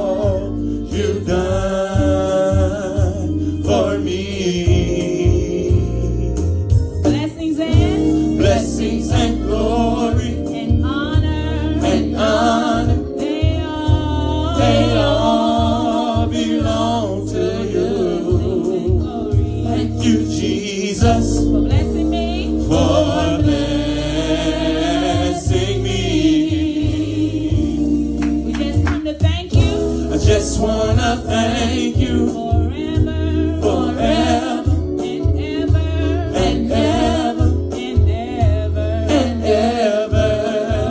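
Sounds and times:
backing voices singing: 0.0 - 6.4, 7.5 - 40.9
instrumental music with heavy bass: 0.0 - 40.9
woman singing: 7.1 - 8.8, 10.2 - 12.1, 13.0 - 14.9, 21.2 - 22.8, 28.4 - 29.9, 32.1 - 39.4.

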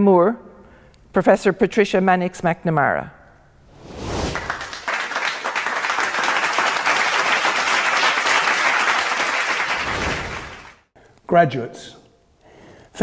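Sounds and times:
crowd applauding: 4.3 - 10.9.

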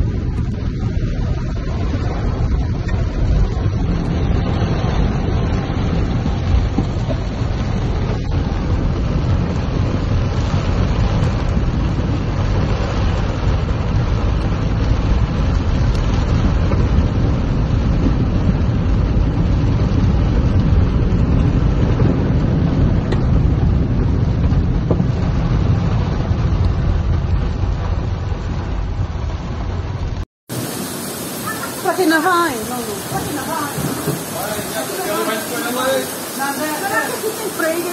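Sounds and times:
car engine and road noise: 0.0 - 37.9
rain beating on car roof: 0.0 - 37.9.

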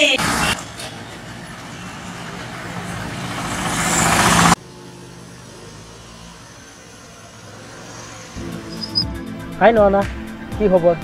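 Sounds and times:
steady engine hum: 0.0 - 10.5
motor scooter engine passing: 1.2 - 9.5.

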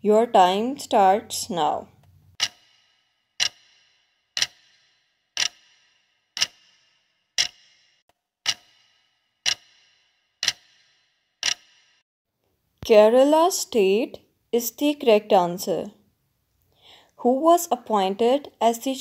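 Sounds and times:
clock ticking: 2.3 - 12.0.

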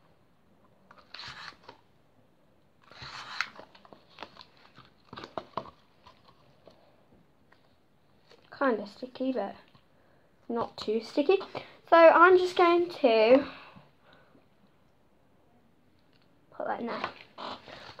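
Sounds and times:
hands working slime: 2.8 - 6.8.

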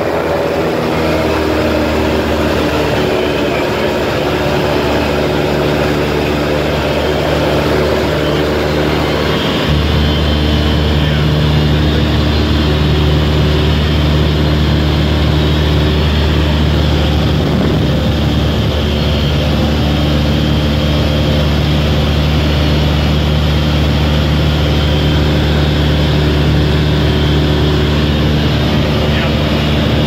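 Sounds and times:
aircraft engine hum in cabin: 0.0 - 30.0
constant rush of noise: 0.0 - 30.0.

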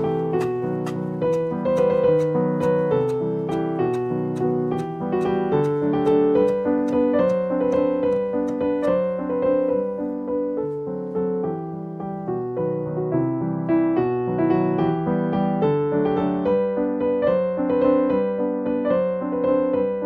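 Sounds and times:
knife chopping on wooden board: 0.0 - 9.0
soft piano music: 0.0 - 20.0.

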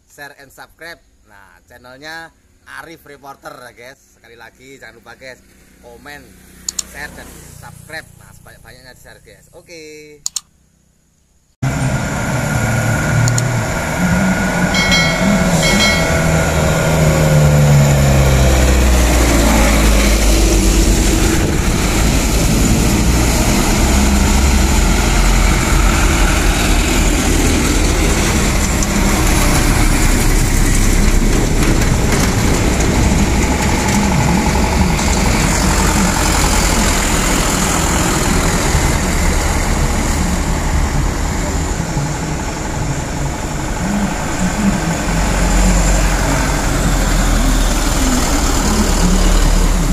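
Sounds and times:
heavy truck diesel engines: 11.6 - 49.9.

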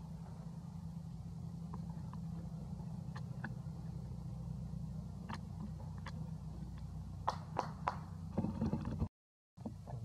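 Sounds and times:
low engine-like hum: 0.0 - 10.0.

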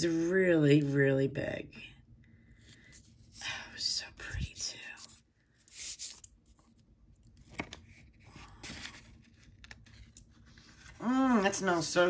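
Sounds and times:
soft packaging rustling: 4.2 - 12.0.

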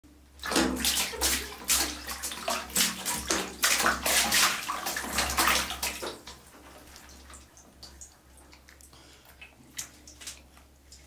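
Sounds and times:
water gushing into a tub: 0.4 - 8.1.

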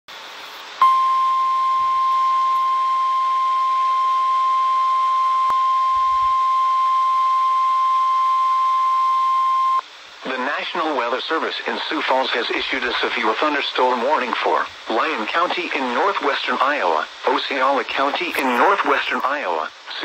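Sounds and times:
steady high-pitched alarm tone: 0.8 - 9.8.

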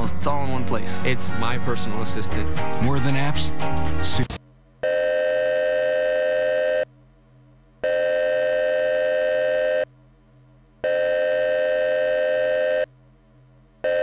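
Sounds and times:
faint hum: 4.3 - 14.0.

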